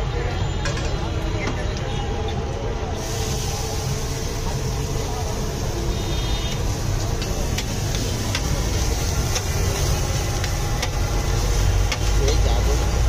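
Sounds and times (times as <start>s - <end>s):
traffic rumble: 0.0s - 13.0s
even hiss: 3.0s - 13.0s.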